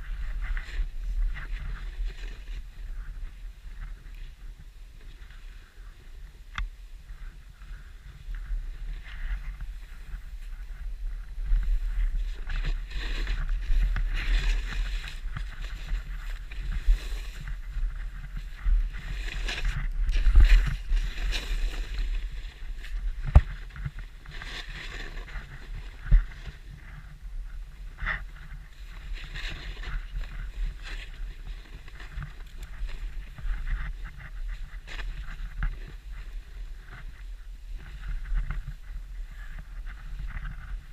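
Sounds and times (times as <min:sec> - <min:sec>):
wind buffeting microphone: 0:00.0 - 0:40.9
skis hissing through powder snow: 0:11.7 - 0:23.7.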